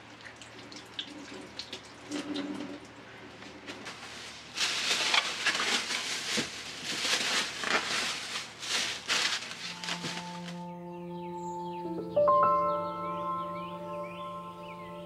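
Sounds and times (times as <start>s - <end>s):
plastic bags rustling: 3.7s - 10.6s.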